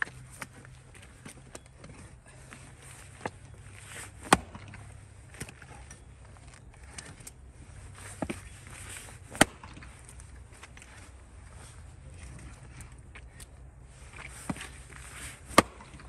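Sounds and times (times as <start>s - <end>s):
axe chopping wood: 4.2s - 4.8s, 9.3s - 9.9s, 15.4s - 16.0s.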